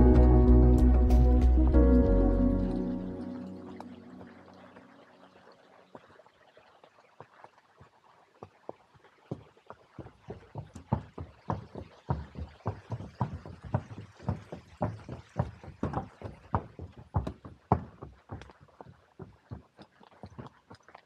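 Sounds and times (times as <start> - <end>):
horse hooves clopping: 7.1 - 21.0.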